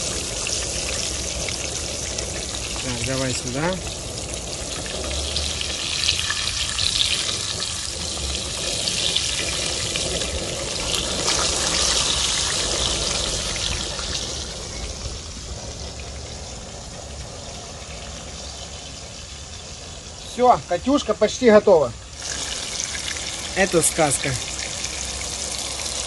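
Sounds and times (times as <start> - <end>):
fish sizzling in hot oil: 0.0 - 26.0.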